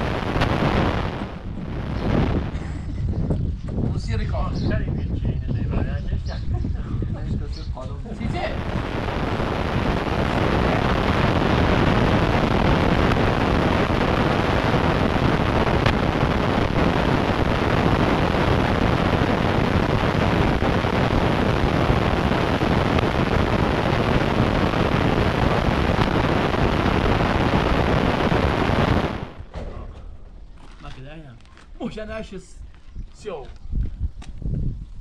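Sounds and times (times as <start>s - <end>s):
loud rushing noise: 0.0s - 2.6s, 8.4s - 29.5s.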